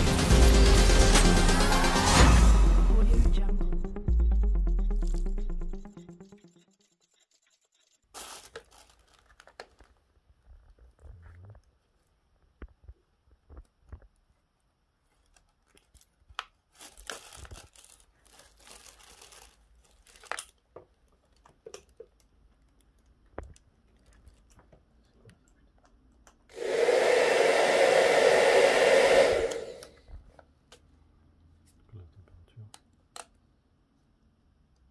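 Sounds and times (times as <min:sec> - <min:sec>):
plastic wrapping crinkling: 0:08.1 - 0:11.0, 0:15.0 - 0:24.7
hair dryer blowing: 0:26.5 - 0:30.0.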